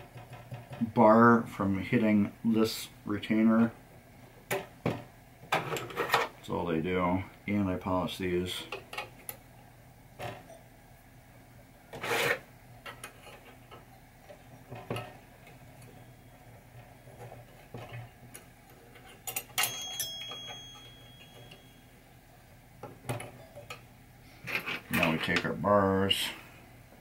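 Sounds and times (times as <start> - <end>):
metal clink ringing: 19.3 - 22.0.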